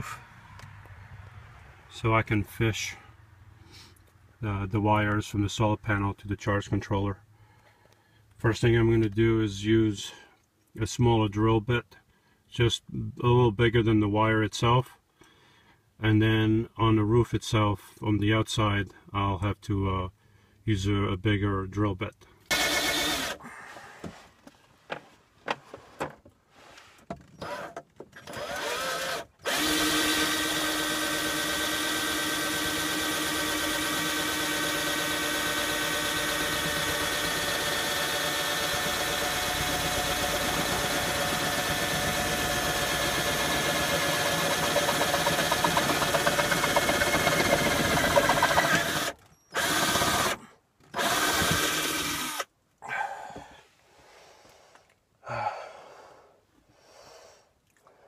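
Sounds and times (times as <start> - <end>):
cordless drill boring wood: 22.5 - 23.4, 27.4 - 52.5.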